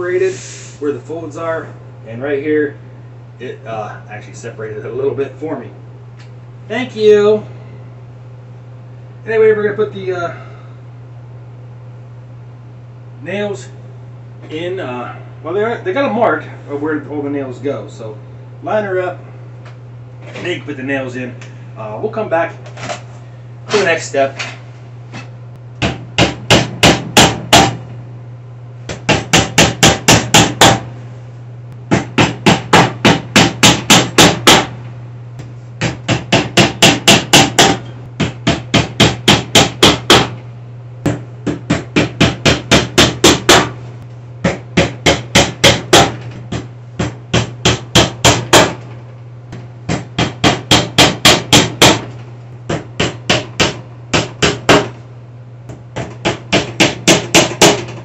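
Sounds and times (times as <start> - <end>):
hammer tapping nails: 56.0 - 58.0.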